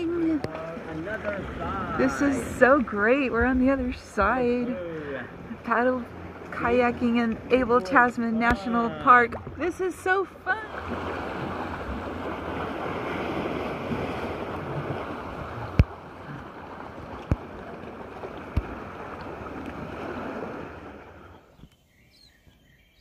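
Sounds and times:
water splashing around kayak: 0.0 - 21.8
birds chirping: 21.0 - 23.0.

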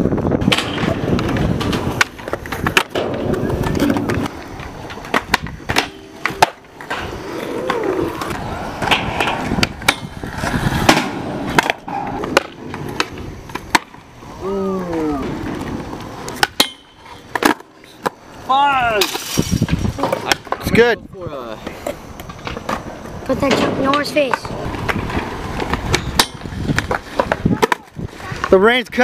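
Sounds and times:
skateboards rolling on concrete: 0.0 - 29.0
skateboard clacks: 0.1 - 20.8, 21.6 - 29.0
person shouting: 14.4 - 15.3.

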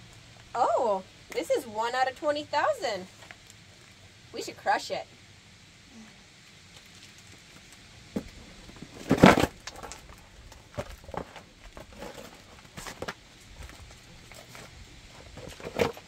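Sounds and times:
cardboard and plastic cracking: 6.7 - 14.7
loud crunch of box: 8.2 - 13.2.

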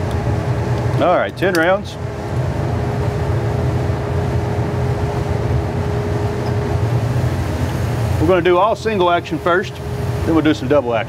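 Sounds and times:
faint steady hum: 0.0 - 11.0
ventilation system rumble: 0.0 - 11.0.

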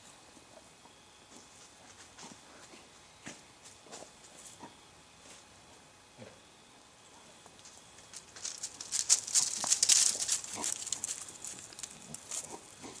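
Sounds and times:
dry grass rustling and crackling: 7.5 - 13.0.

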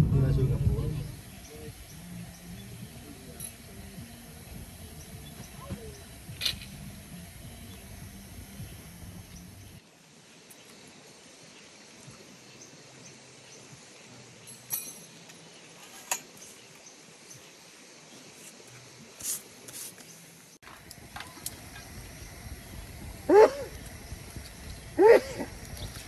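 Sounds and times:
faint outdoor night hiss: 0.0 - 26.0
light clicks and knocks of tarp and poles: 14.5 - 16.8, 18.4 - 21.9.

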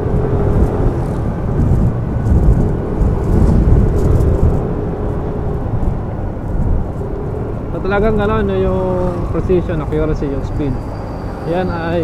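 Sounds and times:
faint engine hum: 0.0 - 12.0
road rumble: 0.0 - 12.0
wind buffeting microphone: 0.0 - 12.0.

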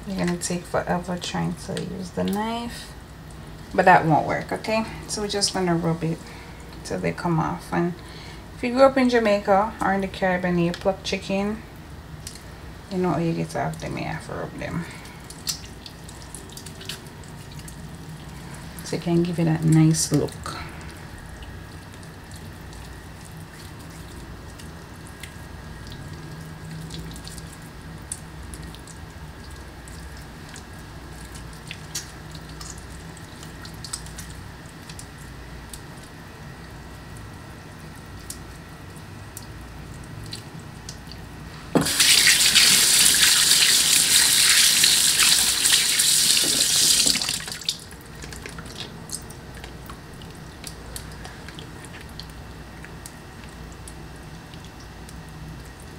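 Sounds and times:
tap running into metal sink: 41.8 - 42.7.

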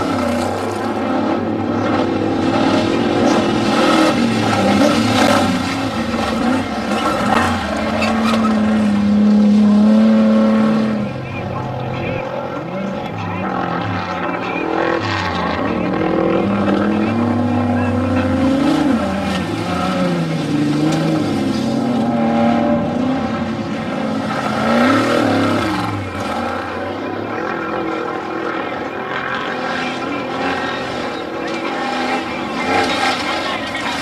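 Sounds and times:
truck engines revving: 0.0 - 34.0.

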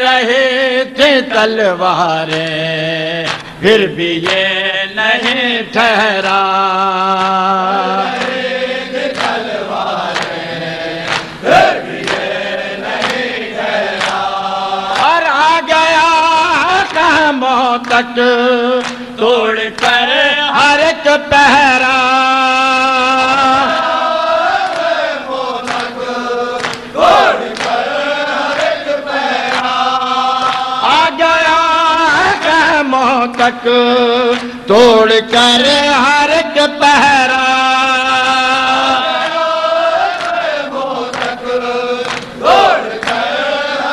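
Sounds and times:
crowd chanting: 7.3 - 17.2, 22.7 - 32.9, 37.0 - 43.9
chest-beating slaps: 11.0 - 12.3, 13.0 - 13.3, 26.6 - 27.8.

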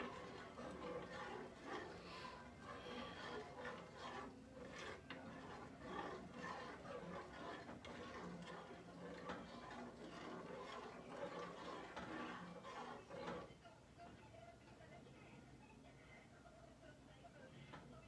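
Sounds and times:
spoon stirring in metal saucepan: 0.0 - 13.6.

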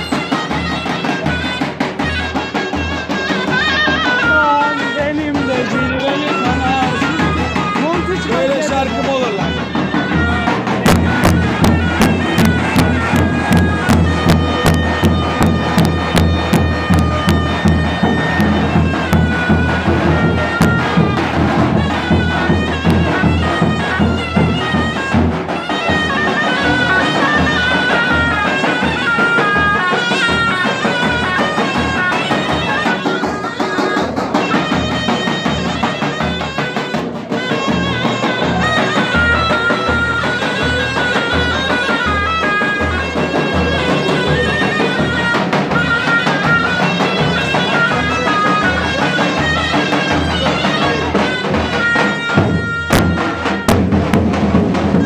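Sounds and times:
shrill reed melody: 0.0 - 55.0
bass drums beating: 4.2 - 26.0, 51.4 - 55.0.

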